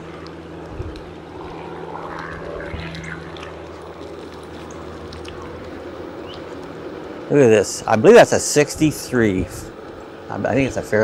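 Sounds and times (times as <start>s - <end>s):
electric scooter motor hum: 0.0s - 7.4s.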